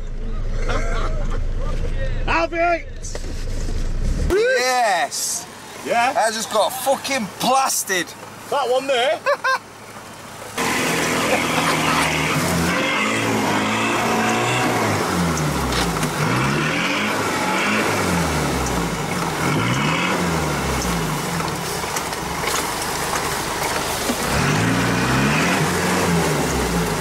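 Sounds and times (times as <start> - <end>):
water and mud splashing: 4.4 - 27.0
engine revving: 10.6 - 22.7, 24.1 - 27.0.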